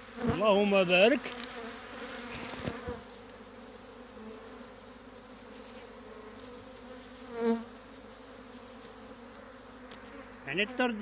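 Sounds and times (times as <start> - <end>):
bee buzzing close by: 0.0 - 11.0
bee swarm humming: 0.0 - 11.0.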